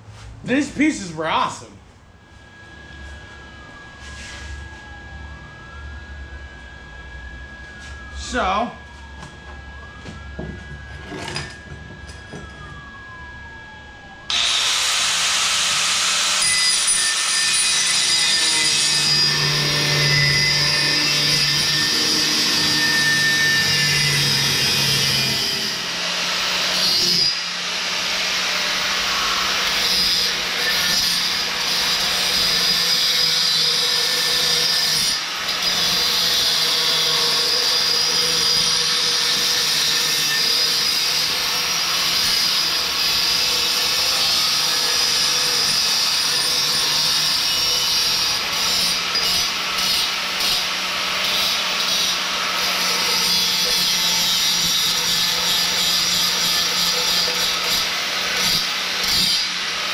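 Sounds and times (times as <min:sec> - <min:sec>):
angle grinder cutting metal pipe: 0:10.7 - 0:12.6, 0:14.3 - 0:59.9.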